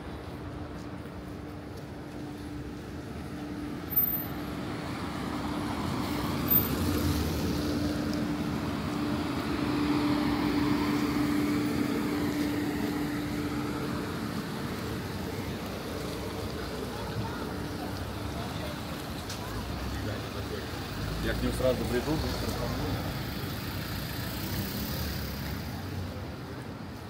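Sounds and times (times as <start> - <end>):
passing vehicle engine: 4.9 - 26.4.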